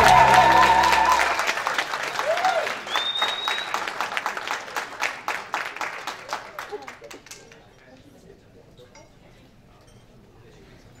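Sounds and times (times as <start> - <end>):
brief high tone: 0.0 - 1.4
music: 0.0 - 1.4
audience applauding: 0.0 - 7.5.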